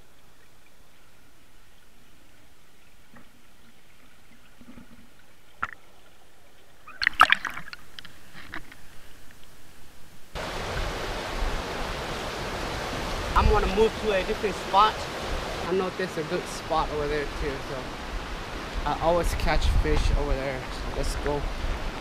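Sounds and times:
rushing river current: 10.3 - 22.0.

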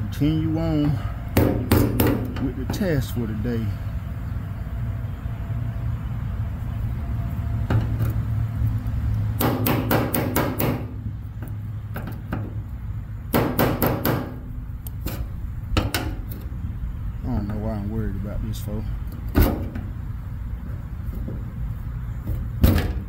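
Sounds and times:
steady low hum: 0.0 - 23.0
hand knocking on metal car parts: 0.8 - 2.8, 9.4 - 12.6, 13.3 - 14.5, 15.8 - 16.3.

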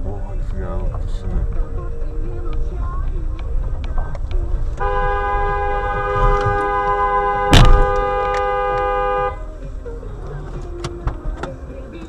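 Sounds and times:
low road rumble: 0.0 - 12.0
car horn blaring: 4.7 - 9.5
collision bang: 7.5 - 8.2.

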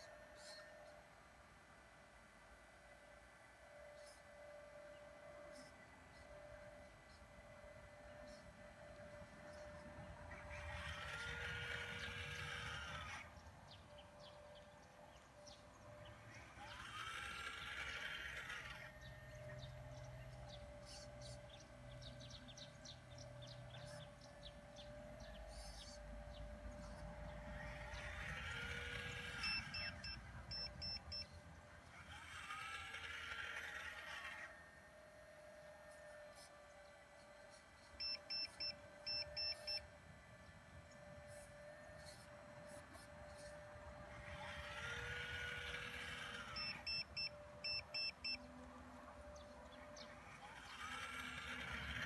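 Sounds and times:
hydraulic pump whining: 7.4 - 52.0
high-pitched electronic beeps: 29.4 - 31.3.

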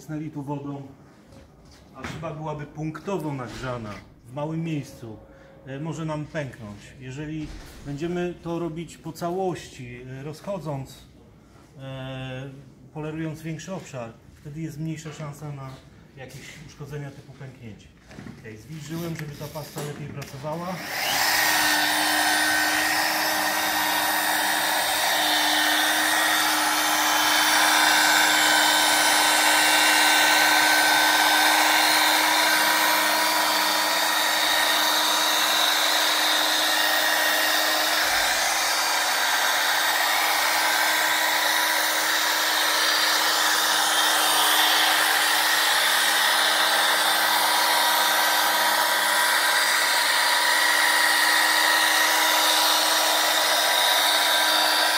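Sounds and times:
polishing machine whirring: 20.5 - 54.9.

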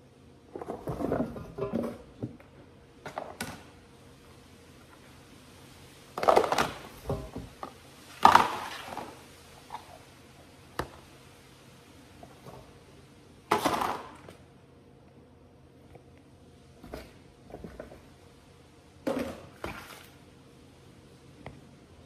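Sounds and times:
plastic containers clattering: 0.5 - 3.7, 6.1 - 10.0, 13.5 - 14.4.

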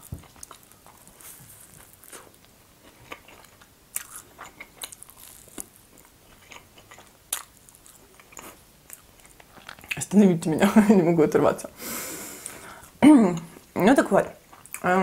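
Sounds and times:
crunchy pastry chewing: 0.0 - 10.0.

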